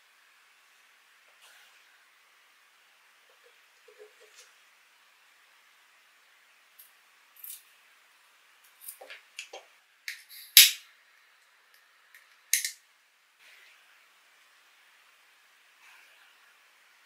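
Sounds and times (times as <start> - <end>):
sharp snap: 10.1 - 10.8
lighter clicks: 12.5 - 12.8.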